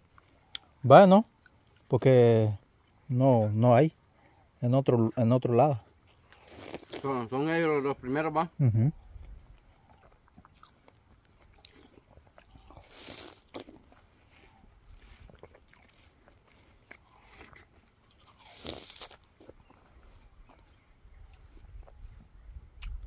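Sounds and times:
person chewing watermelon: 0.0s - 1.9s, 5.8s - 7.2s, 9.1s - 23.0s.

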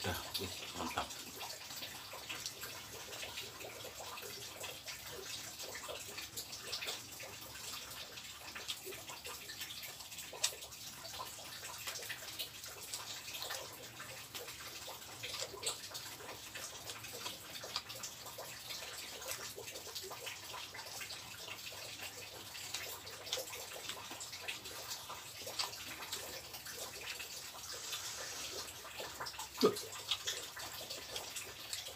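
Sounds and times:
wet clicks of eating by hand: 8.5s - 27.3s.

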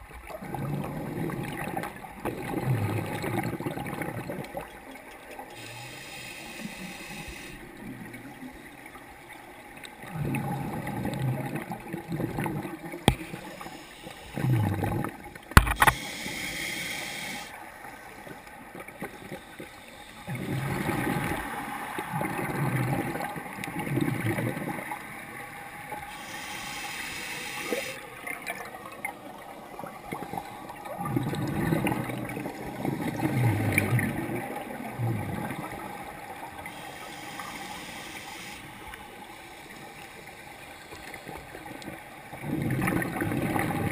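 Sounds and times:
gurgling exhaled bubbles: 0.3s - 4.8s, 10.0s - 13.6s, 14.3s - 16.1s, 20.2s - 26.0s, 27.7s - 36.7s, 41.6s - 43.9s
regulator inhale hiss: 5.5s - 7.8s, 13.2s - 14.6s, 15.7s - 17.6s, 19.0s - 21.9s, 26.0s - 28.1s, 36.6s - 41.3s.

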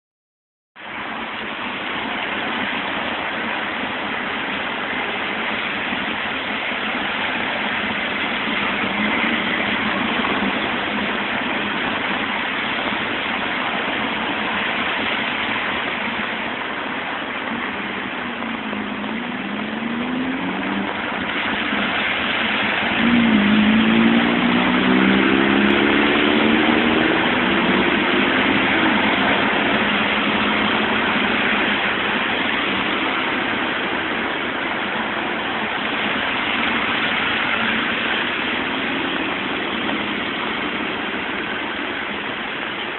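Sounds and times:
tyres splashing through water: 0.8s - 42.9s
passing car engines: 1.9s - 42.9s
engine revving: 7.4s - 12.3s, 18.4s - 42.1s.

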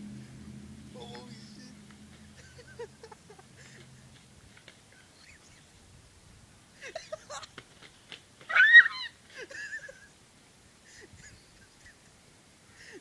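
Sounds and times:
rustling: 0.0s - 10.4s
wing flapping: 7.2s - 9.5s.

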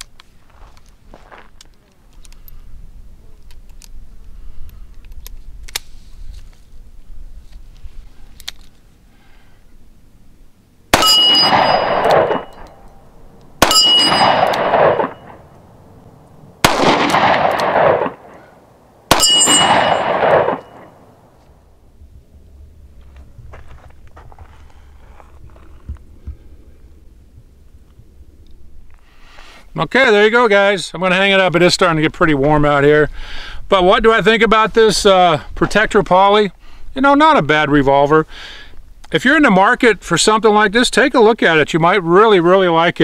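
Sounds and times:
revolver gunshots: 10.9s - 12.8s, 13.6s - 15.5s, 16.6s - 21.2s
revolver handling clicks: 16.7s - 18.3s.

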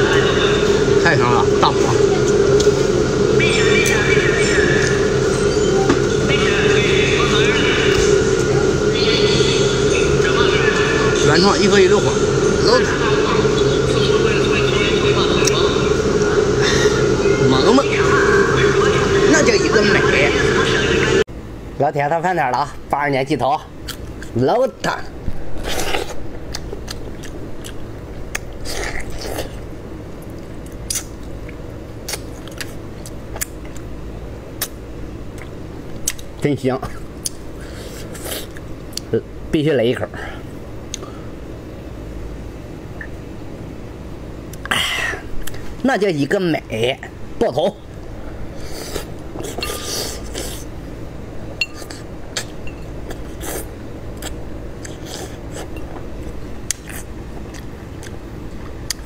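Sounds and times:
man chewing with crunching: 25.6s - 33.9s, 34.6s - 36.3s, 51.7s - 59.0s.

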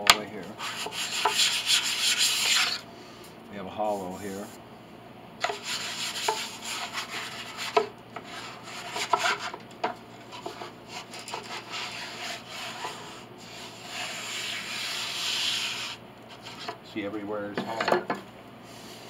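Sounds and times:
wooden block scraping wood: 0.4s - 2.8s, 5.4s - 9.6s, 10.2s - 16.8s.

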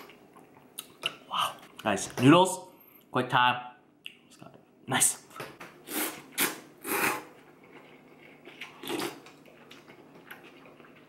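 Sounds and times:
person slurping noodles: 5.8s - 7.4s, 8.6s - 9.2s.

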